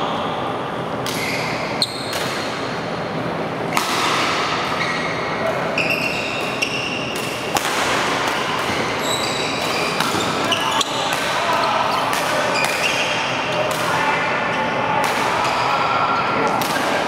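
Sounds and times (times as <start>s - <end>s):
shoes squeaking on court: 4.7s - 7.2s, 8.4s - 13.6s
racket striking shuttlecock: 6.4s - 8.9s.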